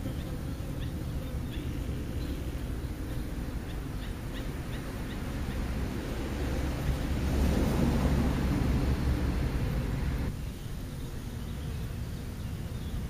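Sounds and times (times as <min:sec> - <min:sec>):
small birds chirping: 0:00.0 - 0:07.2, 0:09.7 - 0:13.0
wind rumble on microphone: 0:01.8 - 0:10.4.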